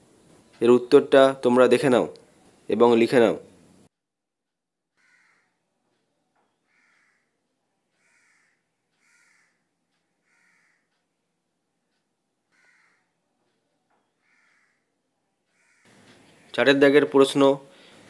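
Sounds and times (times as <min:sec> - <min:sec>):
crow cawing: 0:04.9 - 0:05.7, 0:06.6 - 0:07.4, 0:08.0 - 0:11.0, 0:12.5 - 0:13.2, 0:14.2 - 0:16.0.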